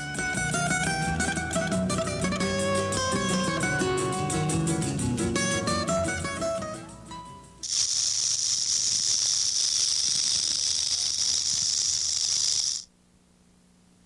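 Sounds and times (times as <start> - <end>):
rattlesnake tail rattle buzzing: 7.6 - 12.9.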